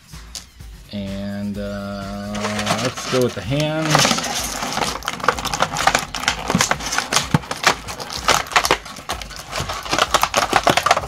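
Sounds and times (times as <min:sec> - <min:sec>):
plastic packaging crinkling: 0:02.2 - 0:11.0.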